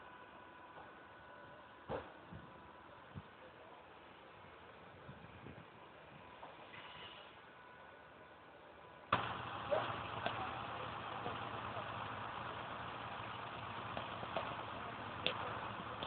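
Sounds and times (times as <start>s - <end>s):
engine running: 9.1s - 16.0s
sharp clicks and knocks: 13.4s - 16.0s.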